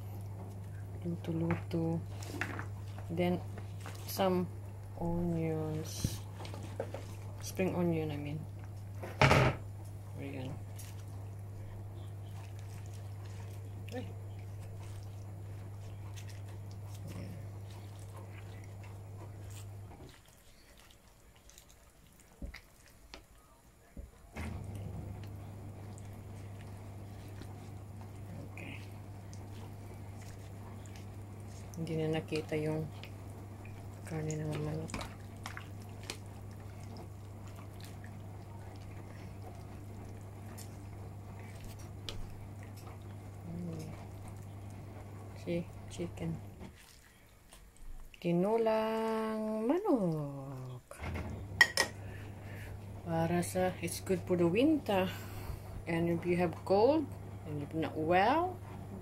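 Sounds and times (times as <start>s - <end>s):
steady low hum: 0.0s - 21.4s, 23.4s - 47.2s, 48.0s - 59.0s.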